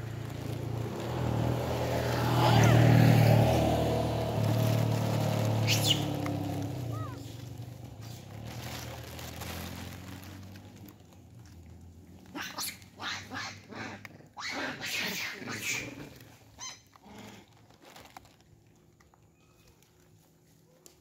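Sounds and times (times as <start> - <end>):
monkey high squeal: 5.6 - 6.1, 14.4 - 15.9
monkeys giving harsh calls: 5.6 - 6.2, 12.3 - 16.0.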